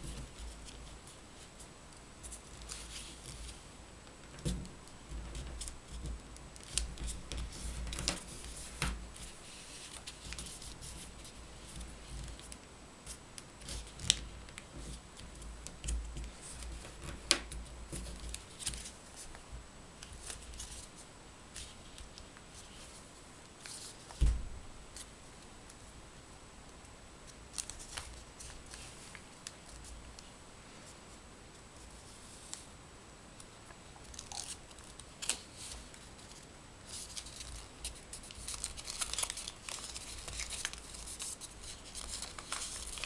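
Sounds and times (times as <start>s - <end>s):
paper rustling and crackling: 0.0s - 3.6s, 4.3s - 19.4s, 20.0s - 25.1s, 27.3s - 31.0s, 34.0s - 43.0s
dull thump: 24.2s - 24.6s.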